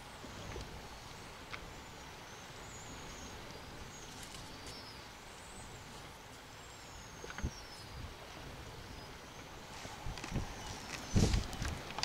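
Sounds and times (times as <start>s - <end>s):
wind rumble: 7.2s - 12.0s.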